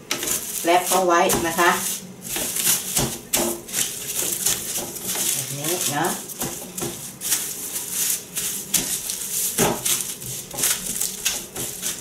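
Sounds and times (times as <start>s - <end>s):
cling film crinkling: 3.7s - 12.0s.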